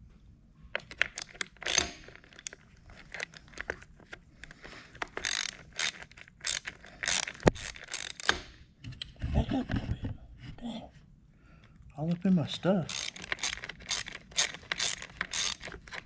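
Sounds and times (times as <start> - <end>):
hand ratchet clicking: 0.9 - 3.7, 4.4 - 8.5, 12.9 - 16.0.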